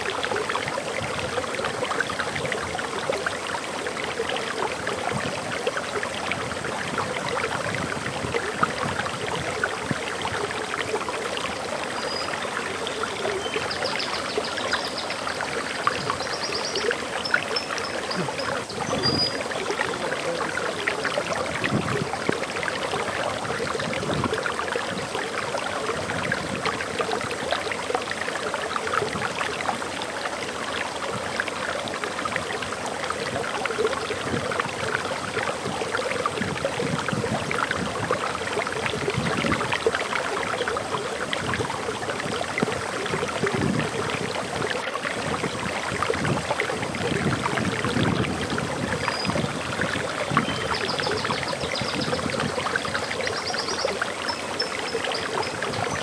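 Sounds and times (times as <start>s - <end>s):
waterfall rushing and splashing: 0.0s - 56.0s.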